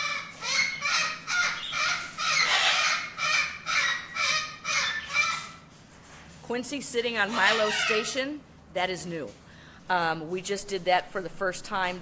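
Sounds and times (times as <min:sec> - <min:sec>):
bird squawking: 0:00.0 - 0:05.6, 0:07.3 - 0:08.2.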